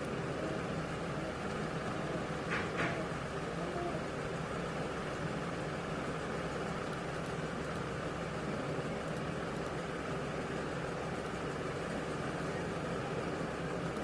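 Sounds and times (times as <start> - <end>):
low hum and hiss: 0.0 - 14.0.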